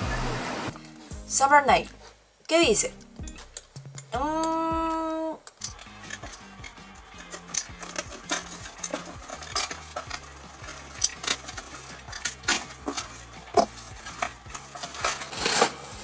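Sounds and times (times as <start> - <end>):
box cutter slicing tape and cardboard: 7.8 - 16.0.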